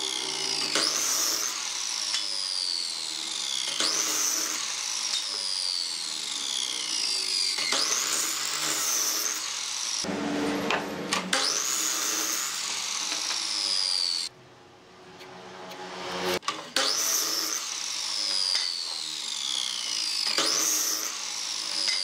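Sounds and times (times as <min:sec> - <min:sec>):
miter saw motor whine: 0:00.0 - 0:10.7, 0:11.3 - 0:14.3
saw cutting through wood: 0:00.0 - 0:14.4, 0:15.0 - 0:22.0.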